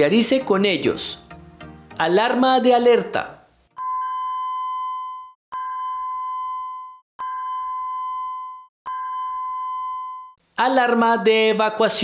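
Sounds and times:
electronic alarm beeps: 0:03.8 - 0:10.4.

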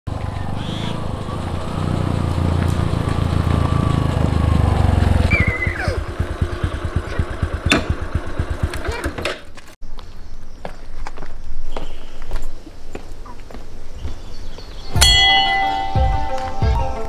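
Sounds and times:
motorcycle engine: 0:00.1 - 0:09.8.

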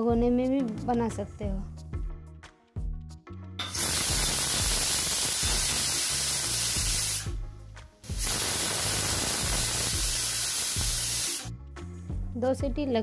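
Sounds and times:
pressure cooker steam hissing: 0:03.6 - 0:07.4, 0:08.1 - 0:11.5.

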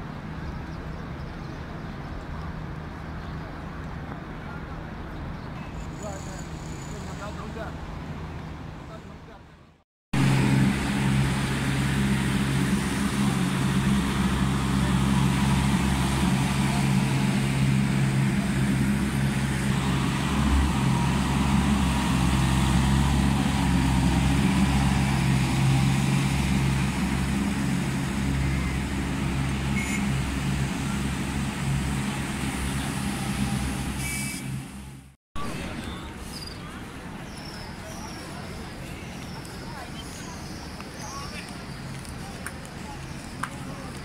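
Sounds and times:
floor scrubber machines running: 0:10.2 - 0:33.5.

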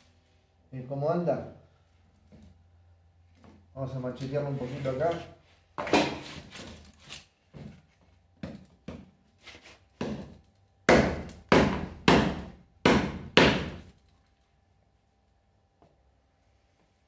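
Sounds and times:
knife chopping wood: 0:10.0 - 0:13.9.

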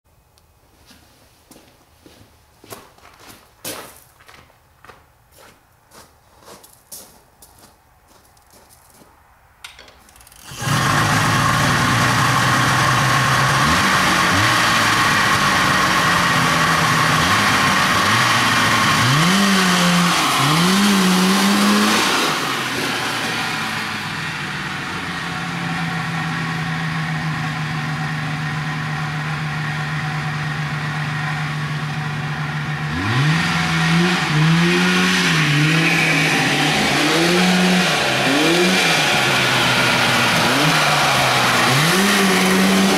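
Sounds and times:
engine starting and revving: 0:10.1 - 0:29.0, 0:30.8 - 0:42.9.

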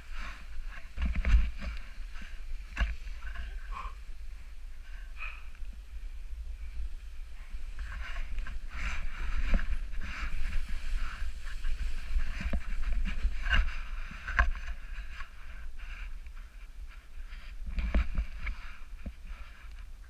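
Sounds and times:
wind rumble on microphone: 0:00.0 - 0:20.0
snowboard edge scraping on snow: 0:07.7 - 0:16.1.

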